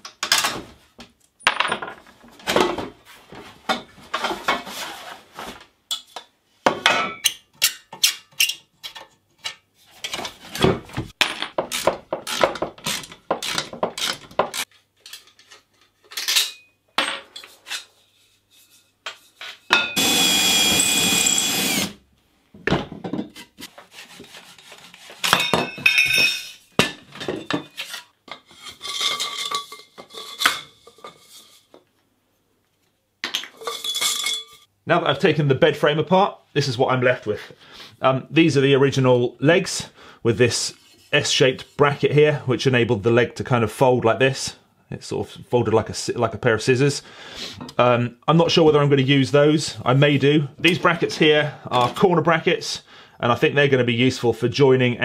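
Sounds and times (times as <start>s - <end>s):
power tool running: 20.0s - 22.0s
metal tubing clinking and knocking: 25.3s - 31.2s.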